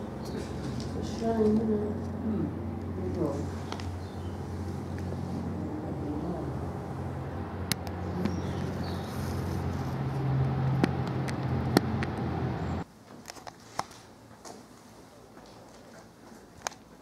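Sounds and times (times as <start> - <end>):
low mechanical hum: 0.0 - 13.1.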